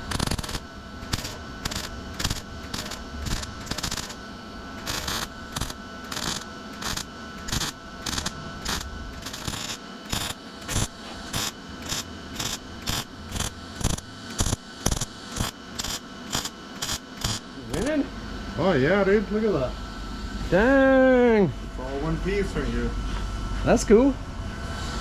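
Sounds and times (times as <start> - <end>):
welding arc crackling: 0.0 - 18.0.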